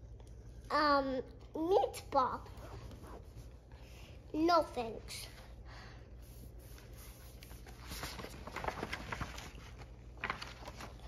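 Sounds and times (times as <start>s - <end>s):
paper pages rustling: 6.6s - 11.0s
page turning swish: 6.8s - 11.0s.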